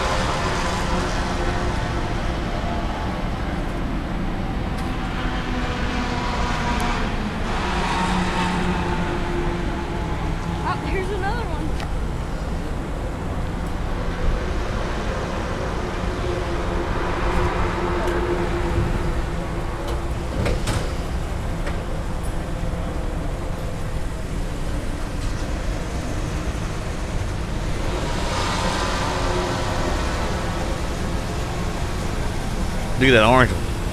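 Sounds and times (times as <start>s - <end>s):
steady outdoor rumble: 0.0s - 33.9s.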